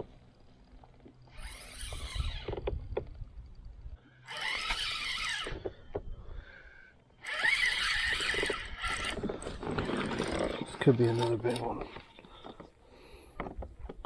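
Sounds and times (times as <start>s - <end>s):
spinning reel whirring: 0.0s - 5.7s, 7.2s - 11.8s.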